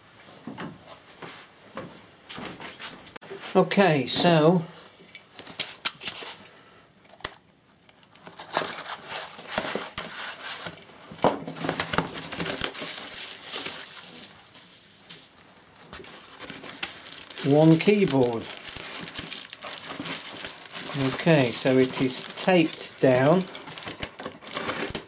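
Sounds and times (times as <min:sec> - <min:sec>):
packing tape tearing: 0:08.1 - 0:10.7, 0:16.0 - 0:25.0
bubble wrap crinkling: 0:11.7 - 0:14.6, 0:15.3 - 0:25.0.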